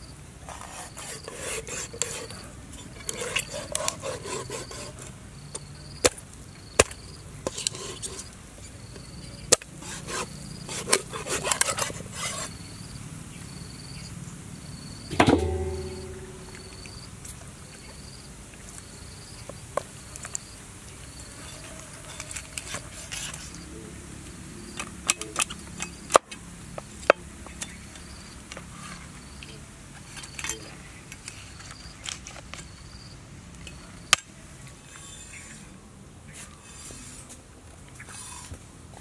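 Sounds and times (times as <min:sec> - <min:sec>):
cleaver scraping fish scales: 0:00.4 - 0:05.2, 0:07.4 - 0:08.4, 0:09.8 - 0:12.6, 0:21.4 - 0:23.6, 0:36.3 - 0:37.4, 0:38.0 - 0:38.6
high insect chirp: 0:12.2 - 0:17.1.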